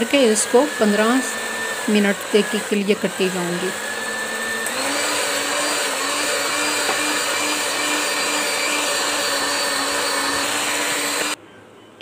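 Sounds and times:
electric hand mixer running: 0:00.0 - 0:11.4.

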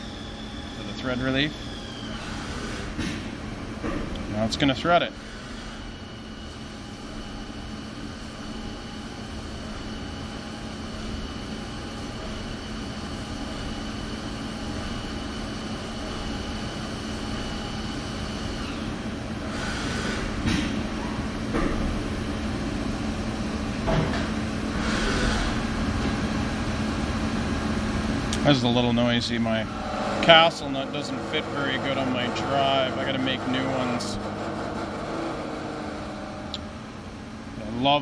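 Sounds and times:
high machine whine: 0:00.0 - 0:03.1, 0:04.3 - 0:38.0
lathe machining hum: 0:00.0 - 0:38.0.

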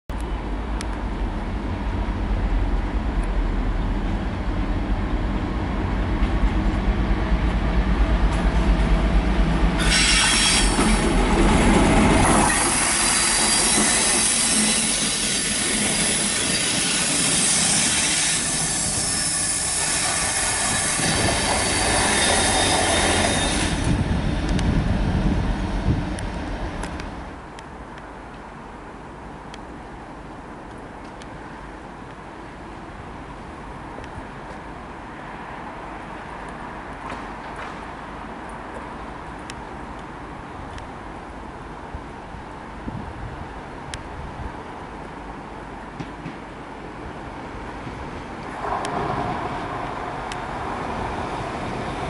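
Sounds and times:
high wheel squeal: 0:09.8 - 0:11.1, 0:12.4 - 0:24.0.

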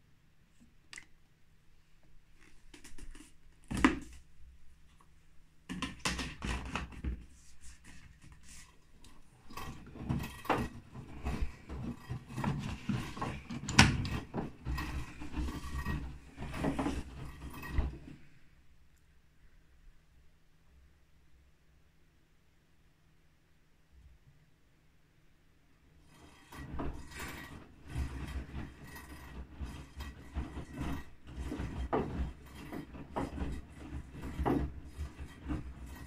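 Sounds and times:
plastic knocks and clatter: 0:02.7 - 0:04.2, 0:05.7 - 0:07.4, 0:09.1 - 0:18.2, 0:26.1 - 0:36.0.

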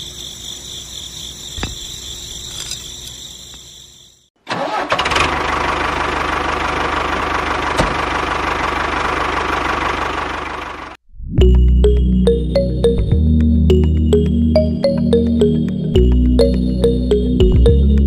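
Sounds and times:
insects chirping: 0:00.0 - 0:04.4
model tractor engine running: 0:04.5 - 0:11.0.

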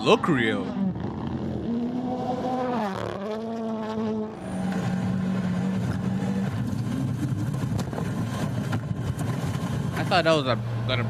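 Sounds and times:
car engine at high revs: 0:00.0 - 0:11.0.

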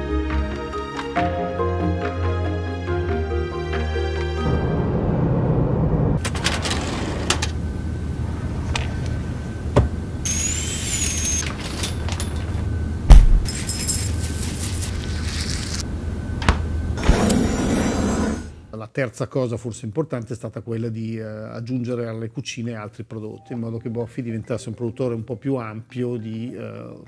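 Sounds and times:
machinery hum: 0:04.7 - 0:18.8
heavy thump: 0:13.1 - 0:13.5.

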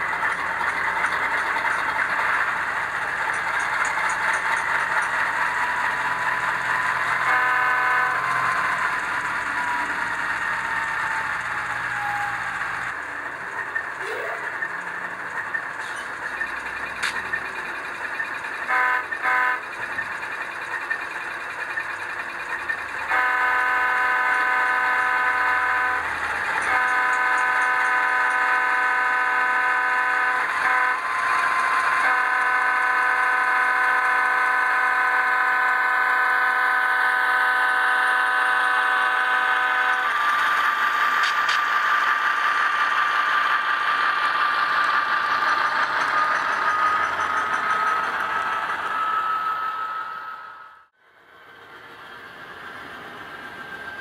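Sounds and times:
diesel engine whine: 0:00.0 - 0:54.0
locomotive air horn blasts: 0:06.6 - 0:09.4, 0:18.6 - 0:19.7, 0:23.0 - 0:40.2.

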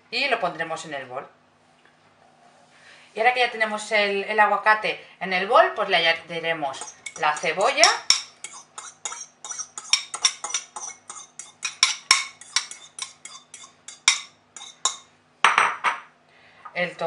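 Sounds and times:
metal utensil scraping a bowl: 0:06.8 - 0:15.0.

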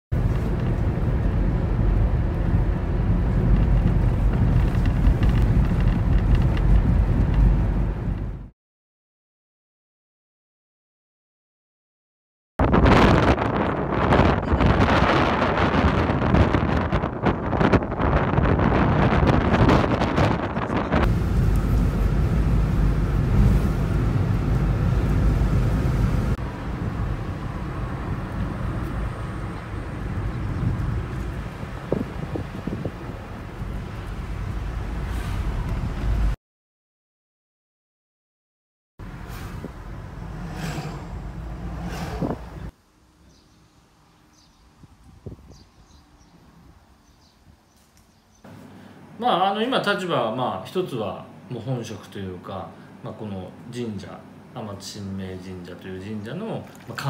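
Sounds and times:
wind buffeting microphone: 0:00.2 - 0:08.4, 0:12.6 - 0:36.4, 0:39.1 - 0:42.7, 0:44.4 - 0:46.3
car interior road and engine rumble: 0:00.2 - 0:08.5, 0:20.2 - 0:36.4, 0:39.0 - 0:42.8.

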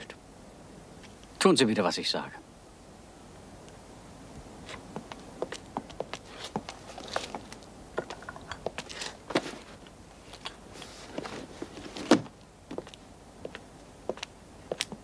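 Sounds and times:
footsteps: 0:04.6 - 0:15.0
paper rustling: 0:06.2 - 0:07.7, 0:08.8 - 0:12.3.

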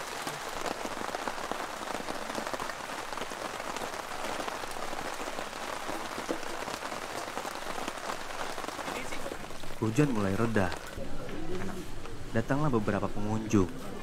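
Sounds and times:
rain pattering on a tarp: 0:00.0 - 0:12.2.

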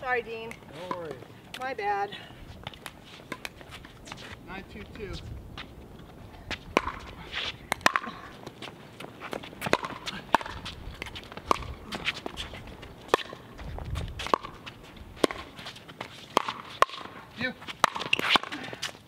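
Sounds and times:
shoes scuffing on hard court: 0:02.6 - 0:04.4, 0:08.4 - 0:19.0
pickleball popping off paddles: 0:06.7 - 0:07.1, 0:07.7 - 0:11.8, 0:13.1 - 0:13.4, 0:16.3 - 0:17.2, 0:17.8 - 0:18.6.

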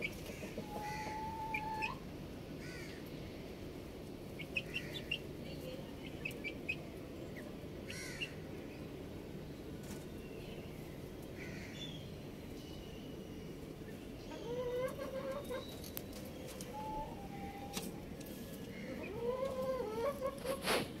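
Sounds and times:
chickens calling: 0:00.0 - 0:03.1, 0:04.0 - 0:05.3, 0:05.9 - 0:08.6, 0:13.6 - 0:21.0.

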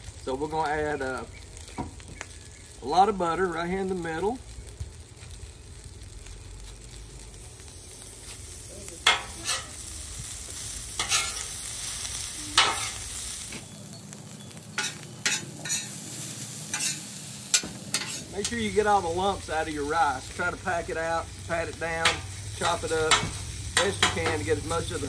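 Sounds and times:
butter and rice sizzling on griddle: 0:00.0 - 0:25.0
metal spatula scraping griddle: 0:09.0 - 0:09.9, 0:10.9 - 0:13.7, 0:14.8 - 0:18.6, 0:22.0 - 0:24.6.

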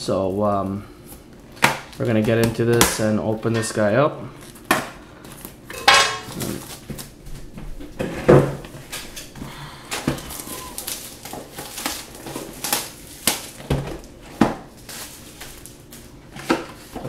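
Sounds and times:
plastic shrink-wrap crinkling and tearing: 0:06.3 - 0:07.2, 0:10.1 - 0:17.0.

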